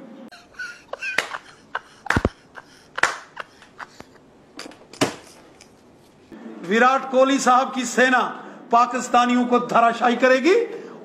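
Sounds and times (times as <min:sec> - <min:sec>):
man laughing: 0:00.3 - 0:04.3.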